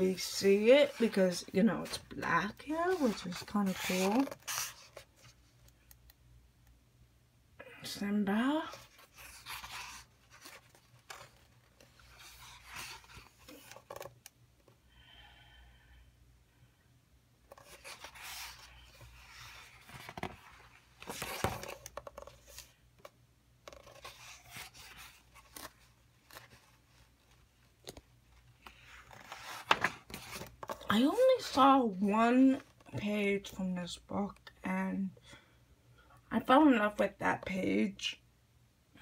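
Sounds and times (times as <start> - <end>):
paper pages rustling: 0.0 - 5.3, 8.8 - 14.2, 17.5 - 22.7, 23.6 - 31.6.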